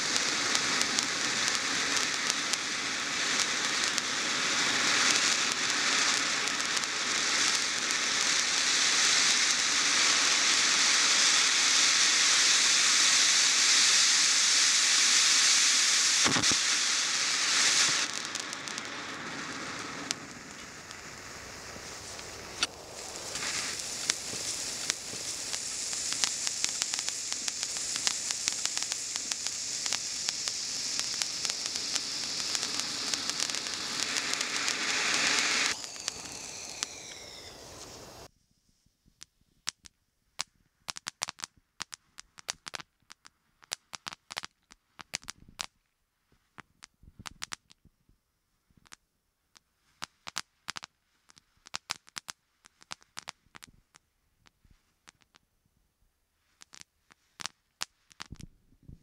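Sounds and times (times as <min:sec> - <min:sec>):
firework fountain hissing: 0:00.0 - 0:38.3
firework crackles and pops: 0:00.0 - 0:48.0, 0:48.6 - 0:55.7, 0:56.4 - 0:59.0.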